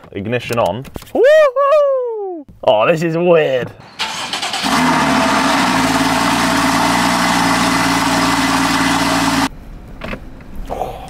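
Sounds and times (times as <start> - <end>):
car engine idling: 3.8 - 9.5.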